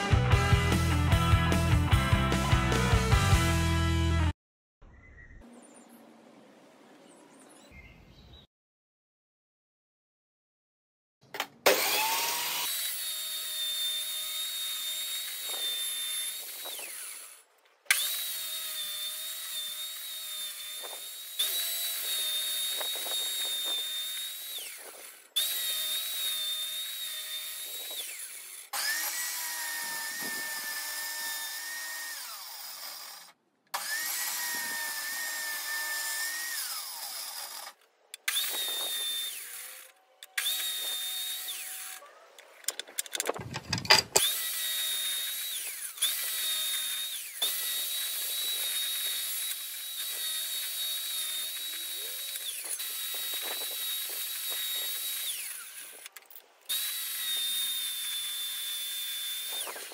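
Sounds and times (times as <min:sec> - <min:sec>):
table saw whining: 0:11.6 - 0:42.0, 0:43.3 - 0:59.9.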